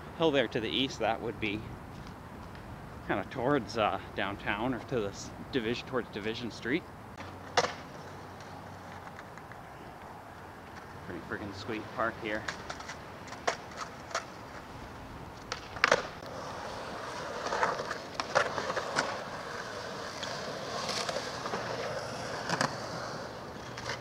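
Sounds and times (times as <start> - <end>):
skateboard wheels rolling on concrete: 0.0 - 24.0
skateboards clacking on ground: 7.2 - 24.0.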